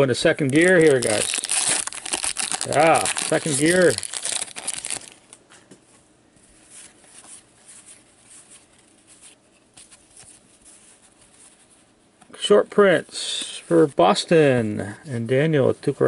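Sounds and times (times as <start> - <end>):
cards being shuffled by hand: 0.4 - 5.1
foil card pack crinkling: 0.4 - 5.3.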